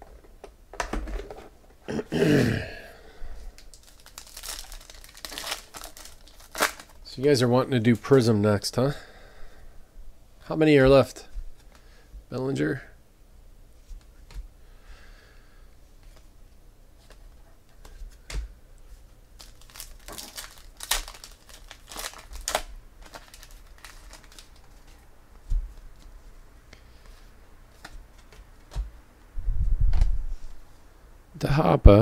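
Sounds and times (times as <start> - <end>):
foil pack tearing and crinkling: 3.6 - 7.0, 19.4 - 24.9.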